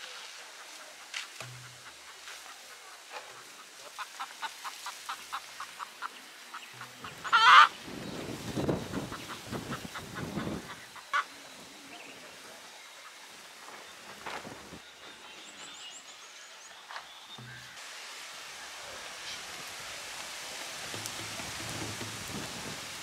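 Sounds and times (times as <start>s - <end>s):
chicken squawking: 6.8s - 7.8s.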